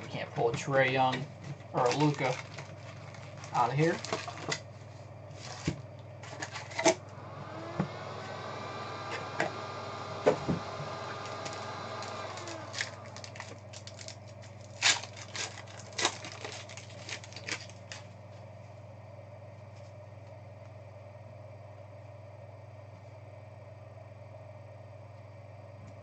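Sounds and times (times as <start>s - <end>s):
faint pitched hum: 0.0s - 26.0s
foil card packs crinkling: 1.0s - 7.0s, 11.2s - 18.2s
sharp crackles: 12.4s - 18.0s.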